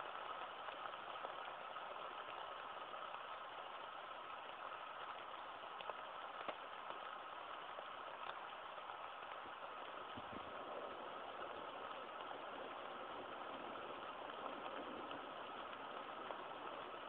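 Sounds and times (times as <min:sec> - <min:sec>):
faint clicks: 0:05.1 - 0:07.1, 0:08.2 - 0:08.5.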